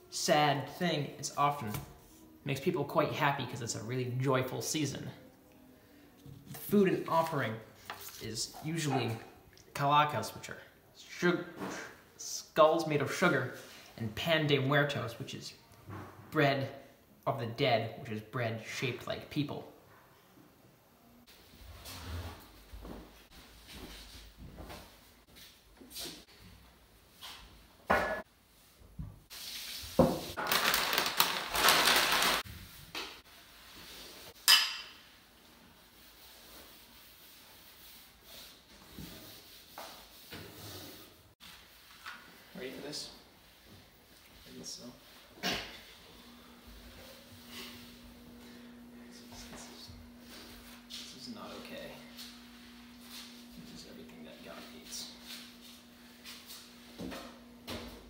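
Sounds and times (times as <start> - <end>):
tortilla chips crackling: 30.4 - 32.4.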